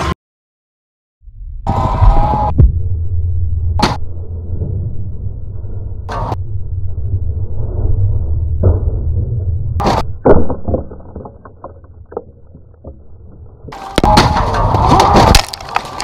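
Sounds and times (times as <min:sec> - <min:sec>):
deep rumble with whoosh: 0:01.2 - 0:13.8
loud crashing clatter: 0:09.8 - 0:16.0.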